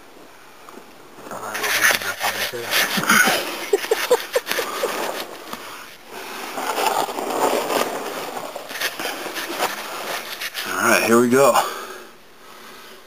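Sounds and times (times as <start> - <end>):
camera rubbing against microphone: 1.3 - 11.2.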